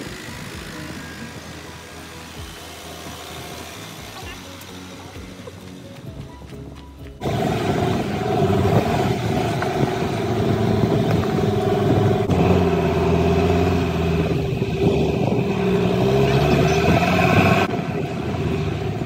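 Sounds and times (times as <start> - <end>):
tyres on gravel: 0.0 - 12.4
vehicle engine running: 0.0 - 19.0.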